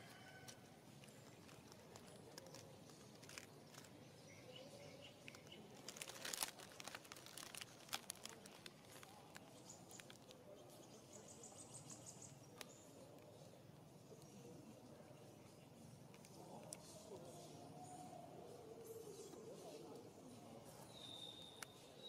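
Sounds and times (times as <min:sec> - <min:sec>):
faint crackles and clicks: 0:00.3 - 0:04.4, 0:05.0 - 0:11.0, 0:11.8 - 0:17.4.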